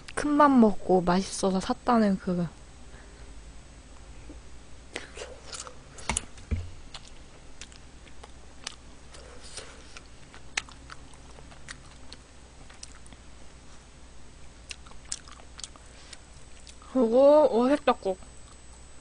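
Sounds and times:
close-miked chewing: 6.9s - 13.3s, 14.6s - 16.9s.

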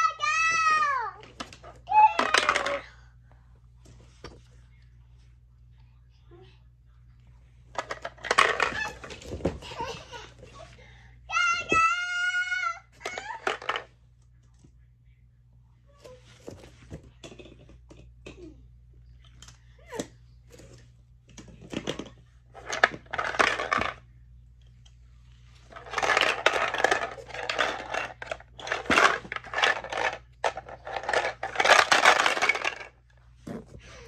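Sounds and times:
plastic shapes clattering in sorter: 1.3s - 2.8s, 7.8s - 9.6s, 13.0s - 13.9s, 21.6s - 24.0s, 25.7s - 33.0s.

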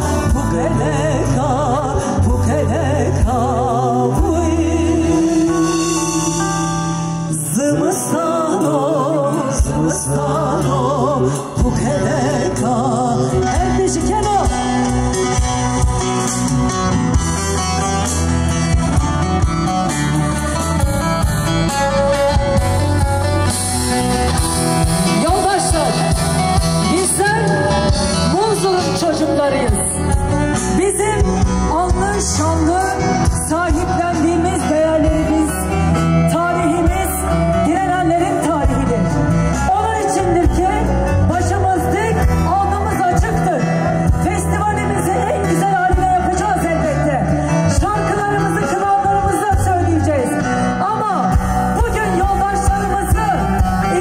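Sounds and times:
person singing: 0.0s - 15.6s
live band with bass line: 0.0s - 54.0s.

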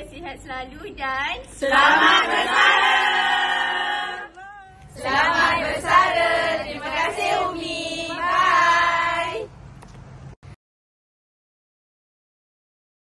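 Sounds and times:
group chanting: 1.6s - 9.5s
young voices calling in unison: 1.6s - 9.5s.

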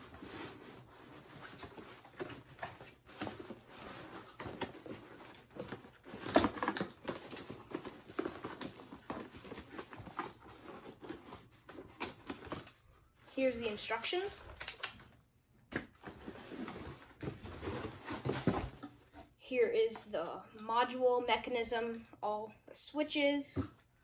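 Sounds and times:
cardboard packaging rustling and knocking: 15.8s - 19.2s.

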